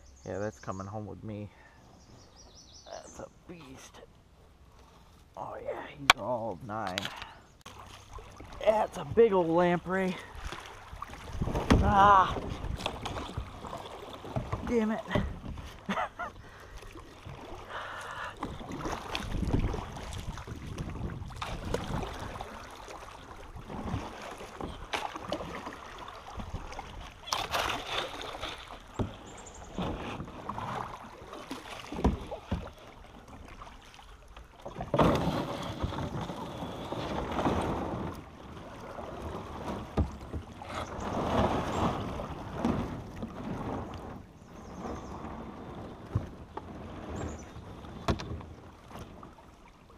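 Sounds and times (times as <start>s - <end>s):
water splashing and sloshing: 0.3s - 49.9s
knocks against hull: 11.3s - 13.5s, 14.3s - 15.8s, 31.7s - 32.8s, 34.6s - 38.2s, 39.6s - 44.2s, 48.0s - 49.2s.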